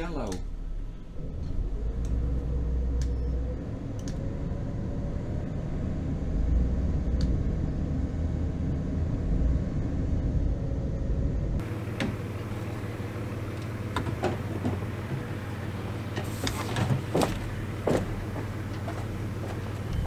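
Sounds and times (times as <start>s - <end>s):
boat engine rumbling: 0.0s - 20.0s
light ticks: 3.0s - 3.2s.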